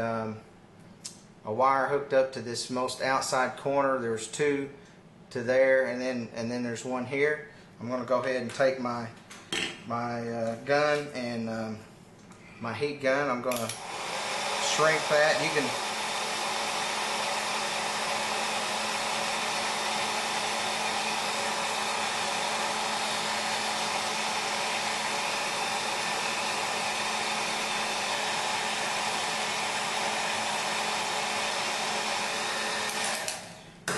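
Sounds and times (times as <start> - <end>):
heat gun blowing hot air: 13.6 - 33.9.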